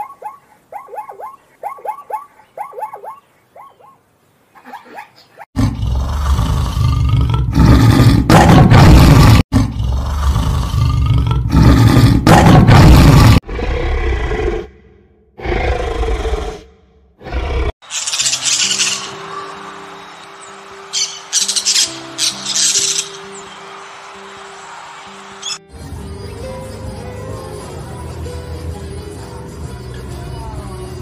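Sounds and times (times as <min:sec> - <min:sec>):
tiger growling: 0:05.6 - 0:17.7
tiger roaring: 0:05.6 - 0:17.7.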